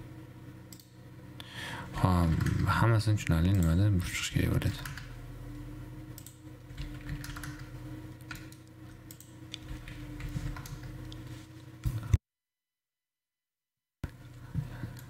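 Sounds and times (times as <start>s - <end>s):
low electrical hum: 0.0s - 12.2s, 14.0s - 15.0s
computer keyboard clicks: 2.3s - 2.6s, 4.8s - 5.1s, 6.2s - 10.9s.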